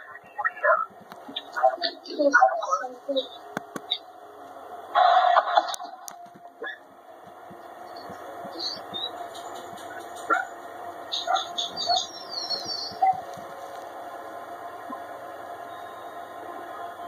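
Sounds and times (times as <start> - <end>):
birds chirping: 0.0 - 4.4, 7.6 - 13.6
steady hum: 0.0 - 17.0.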